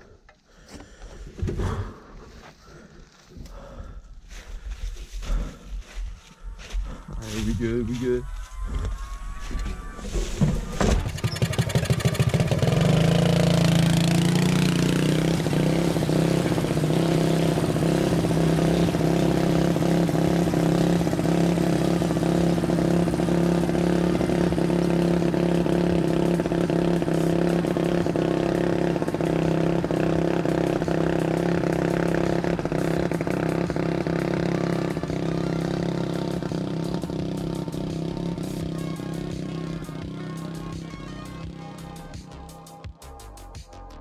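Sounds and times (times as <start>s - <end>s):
lawn mower engine starting: 10.0s - 38.5s.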